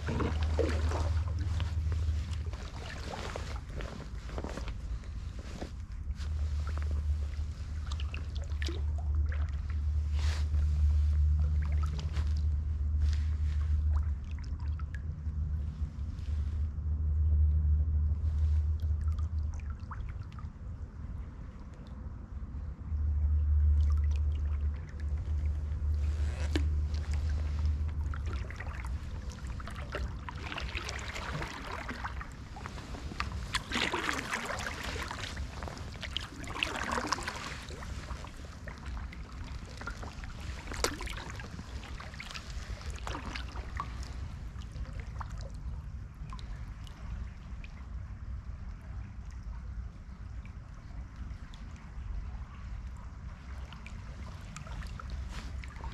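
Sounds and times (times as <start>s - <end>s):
paddle splashing water: 0.0s - 15.0s, 23.7s - 55.9s
low rumble: 0.0s - 55.9s.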